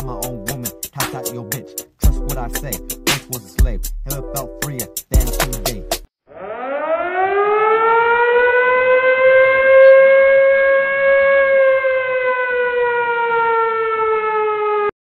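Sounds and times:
siren wailing: 6.3s - 15.0s.

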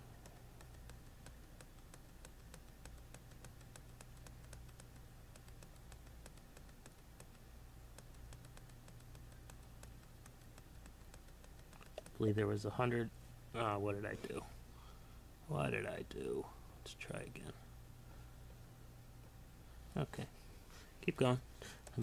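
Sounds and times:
low electrical hum: 0.0s - 22.0s
mouse scroll clicking: 0.2s - 12.2s.

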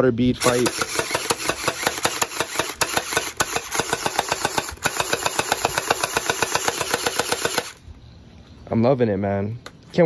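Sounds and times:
toy blaster firing full auto: 0.4s - 7.8s.

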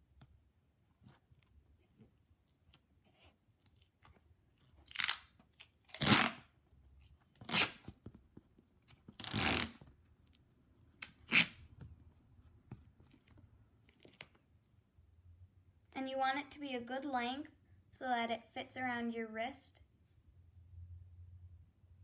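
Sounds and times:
duct tape peeling off roll: 4.8s - 6.4s, 7.4s - 7.8s, 9.2s - 9.8s, 11.0s - 11.6s.

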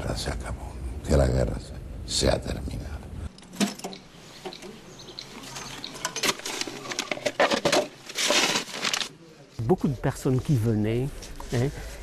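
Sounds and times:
paper rustling: 6.2s - 9.2s.

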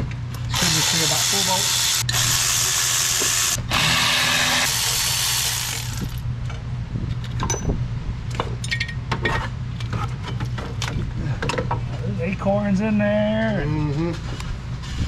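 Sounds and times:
power tool running: 0.5s - 6.2s
metal clinks and knocks: 7.1s - 9.4s.

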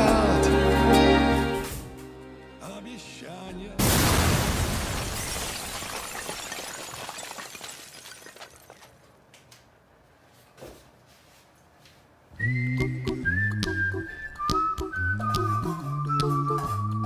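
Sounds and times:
music: 0.0s - 3.8s, 12.4s - 17.0s
glass shattering: 3.8s - 9.0s.

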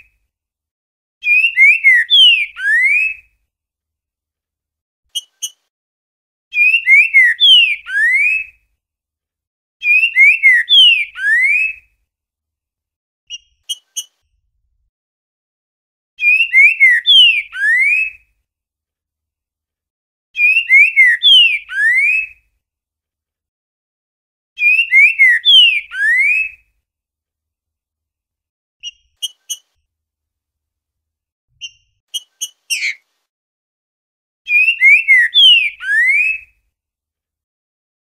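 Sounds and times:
bird whistling song: 1.2s - 3.3s, 5.1s - 5.6s, 6.5s - 8.6s, 9.8s - 11.9s, 13.3s - 14.1s, 16.2s - 18.2s, 20.4s - 22.4s, 24.6s - 26.7s, 28.8s - 29.6s, 31.6s - 33.0s, 34.5s - 36.6s.

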